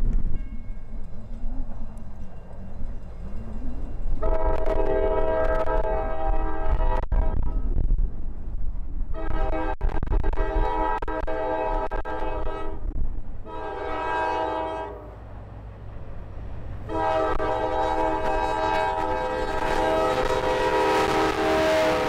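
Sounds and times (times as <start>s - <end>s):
train rumble and wheel noise: 0.0s - 22.0s
locomotive air horn: 4.2s - 7.5s, 9.1s - 15.2s, 16.9s - 22.0s.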